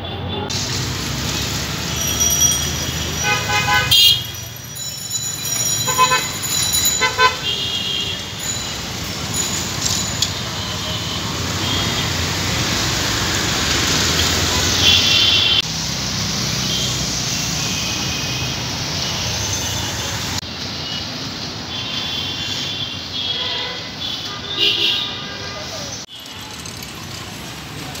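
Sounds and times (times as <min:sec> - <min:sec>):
busy street traffic: 0:00.0 - 0:28.0
high-pitched vehicle horn honks: 0:02.4 - 0:04.4.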